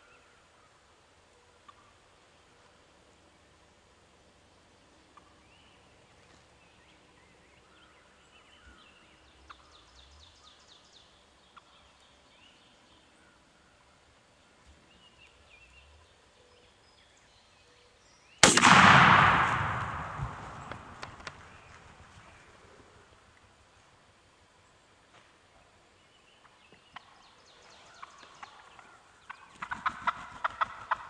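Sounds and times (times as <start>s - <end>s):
turkeys clucking and yelping: 1.5s - 2.0s, 27.8s - 31.0s
shotgun blast: 18.4s - 21.7s.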